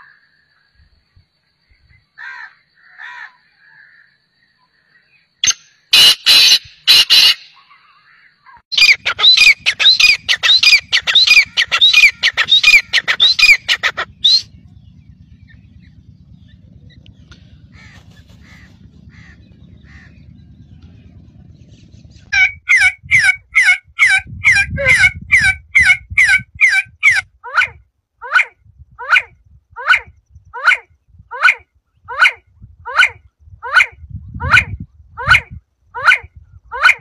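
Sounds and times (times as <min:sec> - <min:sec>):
bird calling falling notes: 0:08.7 - 0:14.8.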